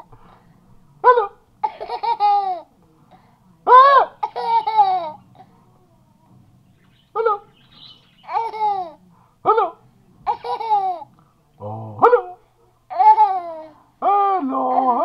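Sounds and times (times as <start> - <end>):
toddler laughing: 1.1 - 2.7, 3.7 - 5.2, 8.3 - 11.1, 12.9 - 13.8.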